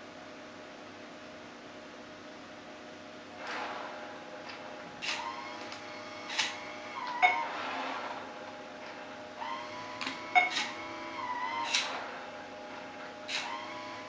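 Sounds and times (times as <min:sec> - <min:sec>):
small motors whirring: 0:09.4 - 0:12.1, 0:13.2 - 0:14.0.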